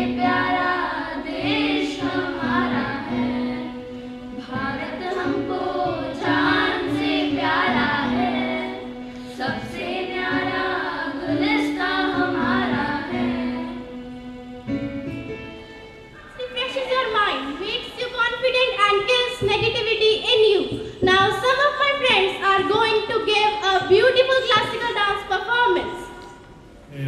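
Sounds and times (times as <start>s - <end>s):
children singing into microphones: 0.0s - 14.0s.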